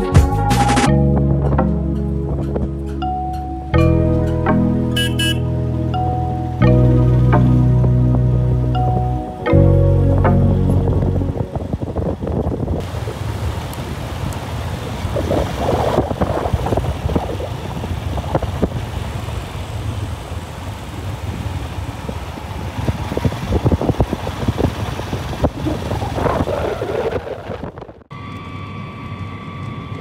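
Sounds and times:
wind noise: 0:07.3 - 0:19.2, 0:21.3 - 0:30.0
motorcycle engine running: 0:17.0 - 0:26.6.

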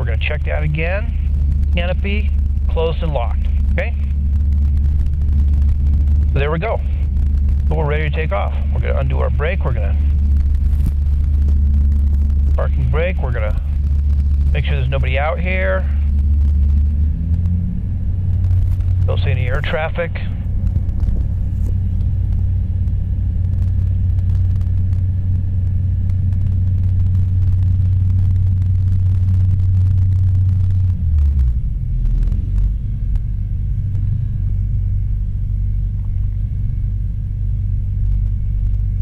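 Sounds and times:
airplane engine low rumble: 0:00.0 - 0:39.0.

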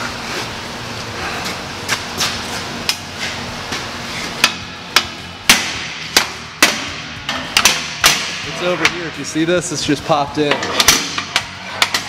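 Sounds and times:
hammer striking steel plate: 0:04.4 - 0:09.2, 0:10.5 - 0:12.0.

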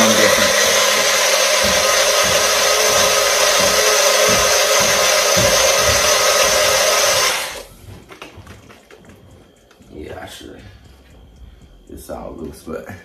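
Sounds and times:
blender running: 0:00.0 - 0:07.7.

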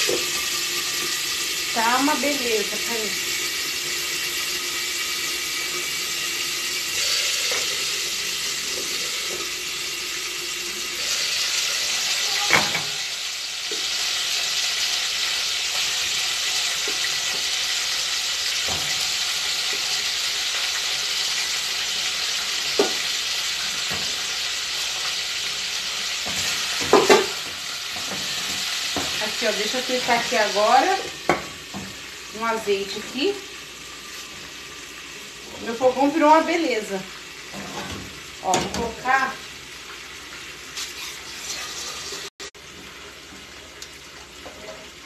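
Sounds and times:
chicken sizzling in oil: 0:00.0 - 0:45.0.

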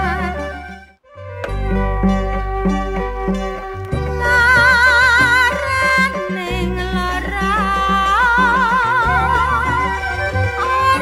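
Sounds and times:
woman singing with vibrato: 0:00.0 - 0:00.5, 0:03.5 - 0:11.0
backing track with bass and beat: 0:01.2 - 0:11.0.

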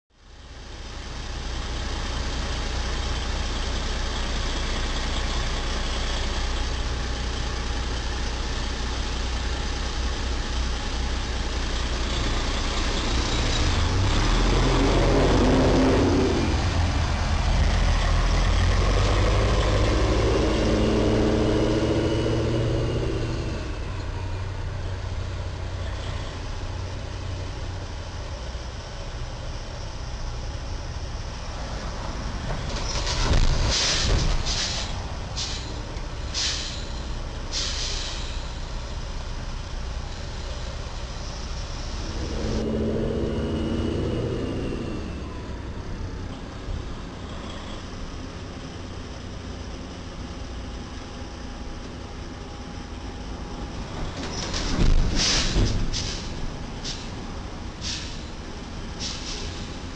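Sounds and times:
heavy engine drone: 0:00.1 - 0:59.9
traffic rumble: 0:00.1 - 0:59.9
vehicle passing loudly: 0:13.1 - 0:23.9, 0:41.8 - 0:46.2.

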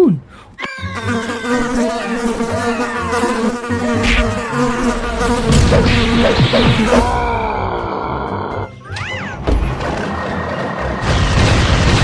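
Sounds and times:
cartoon bees buzzing: 0:00.6 - 0:08.8.

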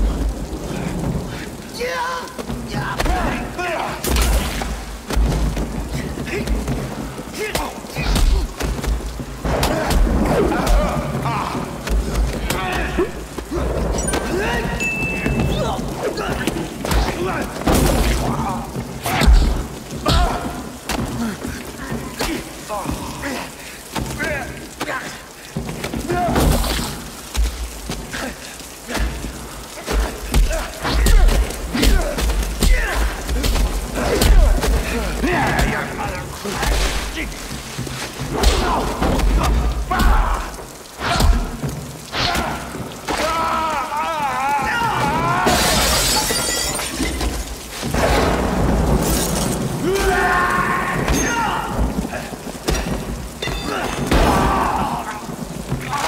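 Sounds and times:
grunts and strained shouts: 0:28.1 - 0:37.4
glass window shattering: 0:45.4 - 0:49.8, 0:53.4 - 0:54.5.

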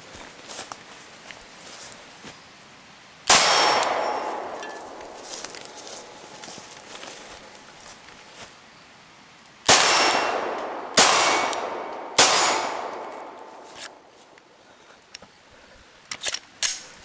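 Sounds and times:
steel target ringing: 0:03.3 - 0:05.0
pistol shots: 0:03.3 - 0:05.1, 0:09.7 - 0:13.6.

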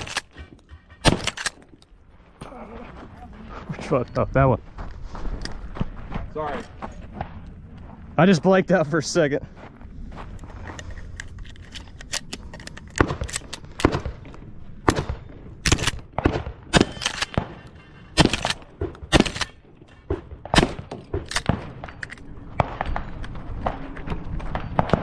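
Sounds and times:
shotgun firing: 0:14.8 - 0:17.6, 0:18.2 - 0:19.5, 0:20.1 - 0:22.0.

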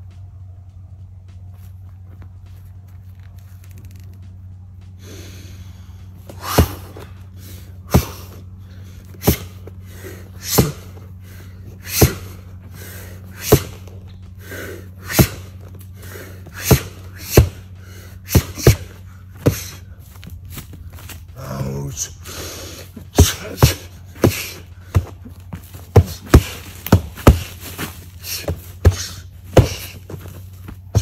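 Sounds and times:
steady low hum: 0:00.0 - 0:31.0
punches thumping on padding: 0:06.2 - 0:07.2, 0:07.8 - 0:08.4, 0:09.1 - 0:11.0, 0:11.7 - 0:12.5, 0:13.3 - 0:14.1, 0:15.0 - 0:15.8, 0:16.4 - 0:21.2, 0:22.8 - 0:31.0.

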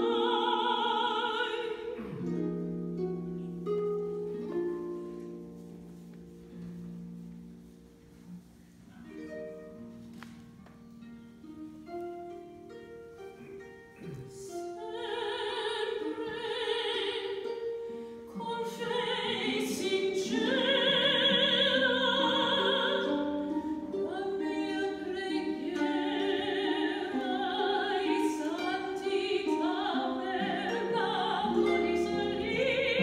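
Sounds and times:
operatic soprano singing: 0:00.0 - 0:02.2, 0:14.1 - 0:33.0
harp playing: 0:00.0 - 0:33.0.

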